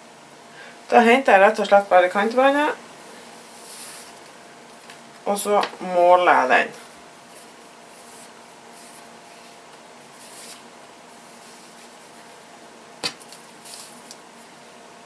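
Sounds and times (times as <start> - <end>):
fabric rustling: 3.2 - 4.2, 6.8 - 12.5.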